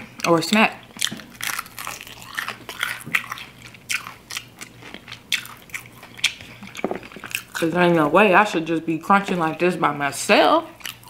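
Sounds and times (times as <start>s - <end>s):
crunchy chewing of fried chicken: 0.0s - 7.7s, 10.7s - 11.0s.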